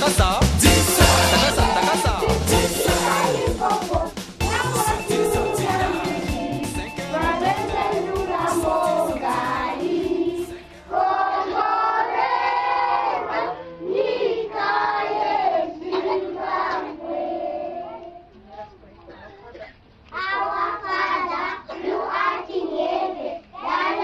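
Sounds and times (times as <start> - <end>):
sharp percussive strokes: 0.0 - 7.0
children singing together: 0.7 - 18.3, 20.2 - 24.0.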